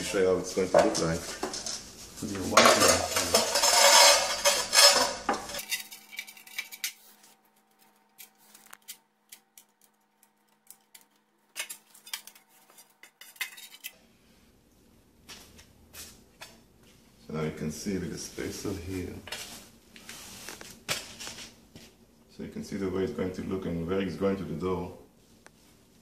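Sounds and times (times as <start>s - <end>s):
floor tiles sliding and clattering: 0.6s - 9.0s, 10.7s - 14.0s, 18.6s - 22.0s.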